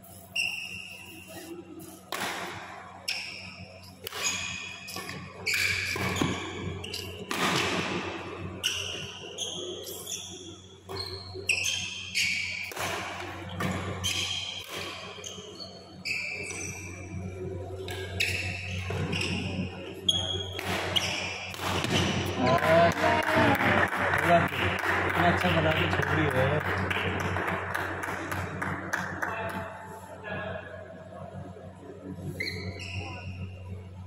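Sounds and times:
rackets hitting shuttlecock: 2.1 - 2.7, 7.2 - 8.0, 12.6 - 15.2, 20.5 - 23.0
shoes squeaking on court: 3.1 - 7.3, 8.6 - 12.8, 13.4 - 17.0, 17.8 - 22.4, 32.4 - 33.4.

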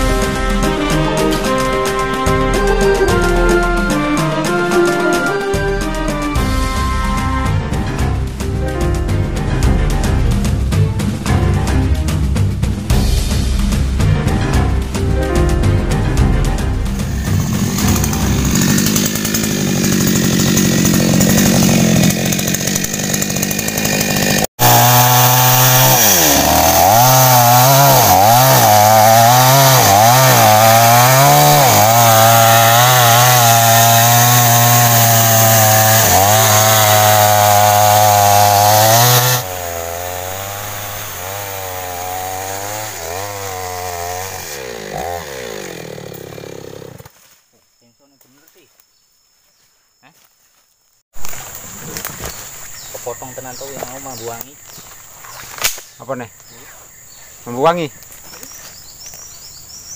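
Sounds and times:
chainsaw cutting through log: 0.0 - 8.7, 16.9 - 47.1.

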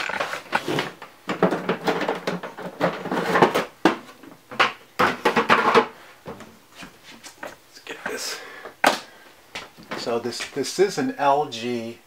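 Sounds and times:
plastic knocks and rattles: 0.0 - 6.6.

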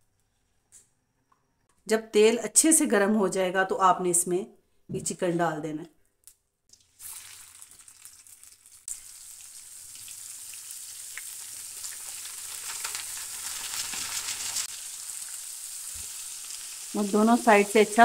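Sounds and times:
chicken deep-frying in oil: 6.7 - 18.0.

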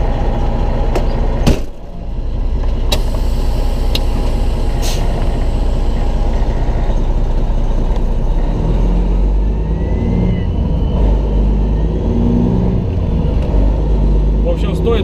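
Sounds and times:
diesel truck engine idling: 0.0 - 15.0
hiss of air: 3.0 - 5.8.

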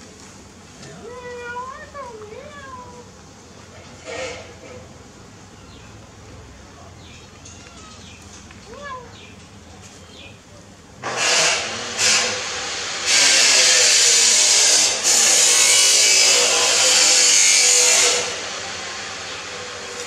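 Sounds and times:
loud power tool running: 11.0 - 20.0.

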